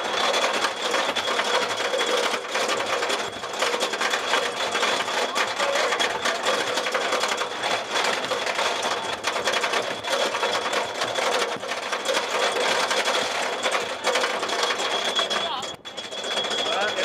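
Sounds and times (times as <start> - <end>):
roller coaster lift chain clattering: 0.0 - 17.0.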